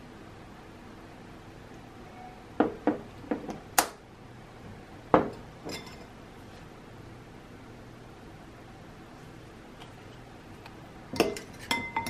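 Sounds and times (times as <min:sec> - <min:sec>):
metal spoons clinking on ceramic: 0:11.2 - 0:12.0.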